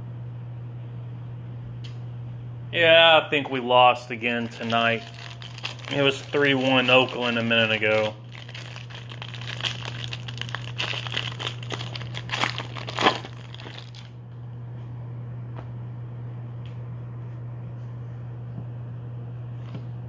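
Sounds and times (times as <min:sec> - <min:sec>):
foil wrapper crinkling and tearing: 0:04.2 - 0:14.1.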